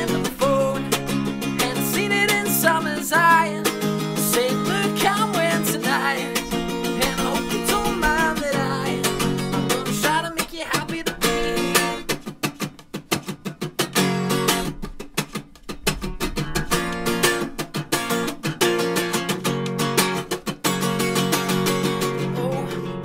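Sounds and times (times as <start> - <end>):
person singing: 0.0 - 12.1, 22.0 - 23.0
acoustic guitar strumming: 0.0 - 23.0.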